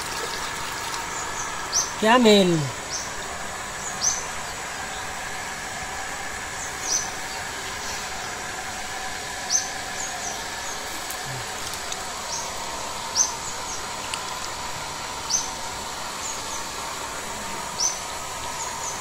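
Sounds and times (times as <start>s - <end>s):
steady background hiss: 0.0s - 19.0s.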